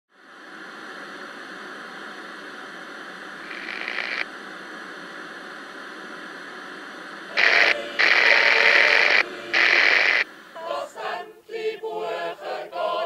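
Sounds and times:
static hiss: 0:00.1 - 0:13.0
harsh static burst: 0:00.4 - 0:10.3.

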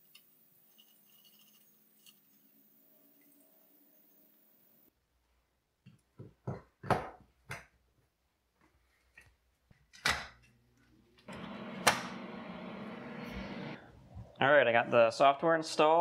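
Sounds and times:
electrical machine hum: 0:11.2 - 0:13.9.

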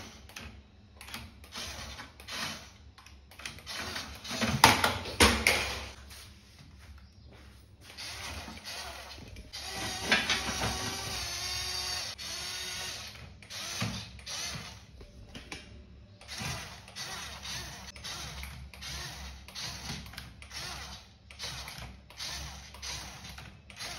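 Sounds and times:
toy motor and gearbox whirring: 0:01.0 - 0:04.6, 0:07.8 - 0:14.9, 0:16.2 - 0:23.9.

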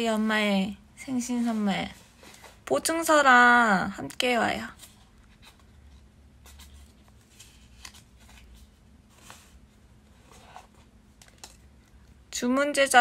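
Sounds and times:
paper and card rustling: 0:04.7 - 0:11.6.

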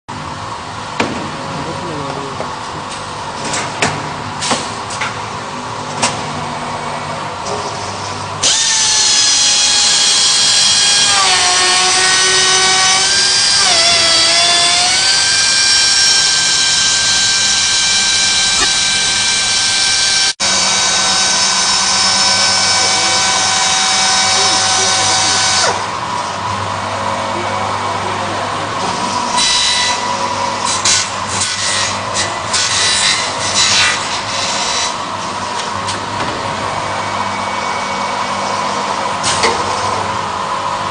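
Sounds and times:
cutter spindles high whine: 0:08.4 - 0:26.0.

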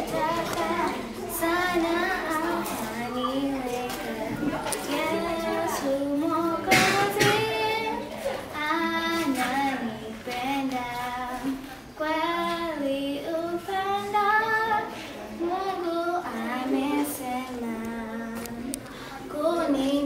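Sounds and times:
child singing: 0:00.0 - 0:20.0
short breaths: 0:18.8 - 0:19.3.

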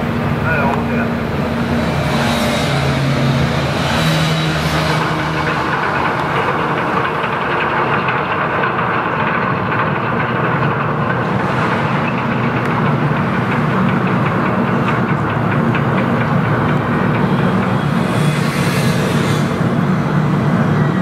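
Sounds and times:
diesel engine droning with clatter: 0:00.0 - 0:21.0.

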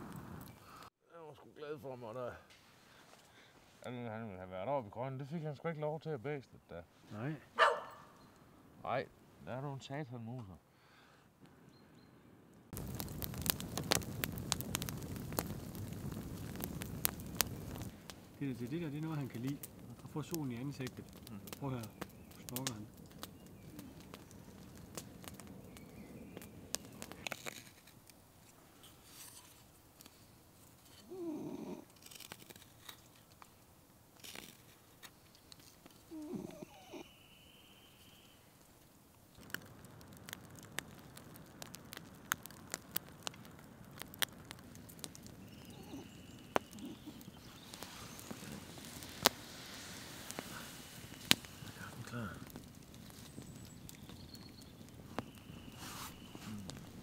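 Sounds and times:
dog snoring: 0:31.1 - 0:31.8, 0:36.2 - 0:37.0.

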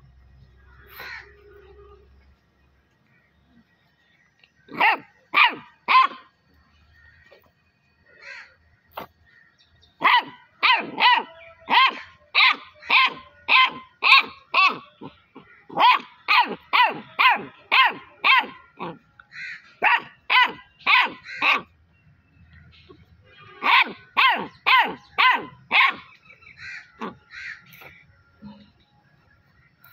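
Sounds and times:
puppy barking: 0:04.7 - 0:06.3, 0:10.0 - 0:19.0, 0:19.8 - 0:21.7, 0:23.6 - 0:26.2, 0:27.0 - 0:27.2.

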